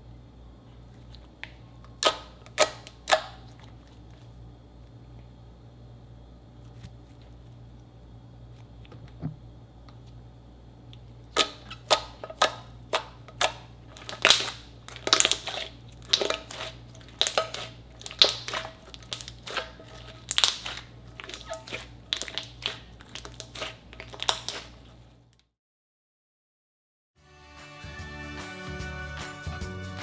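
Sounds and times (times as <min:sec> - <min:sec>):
slime popping and crackling: 0:13.4 - 0:24.8.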